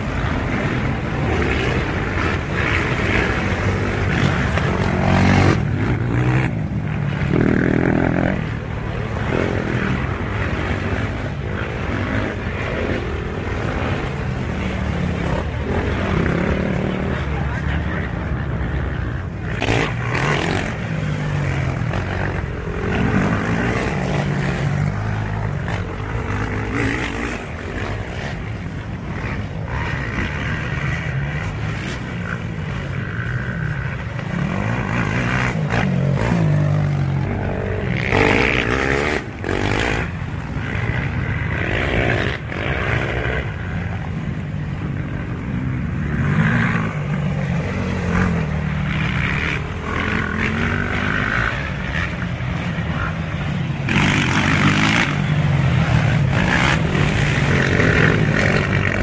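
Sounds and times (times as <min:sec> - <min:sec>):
quad bike engines revving: 0:00.0 - 0:59.0.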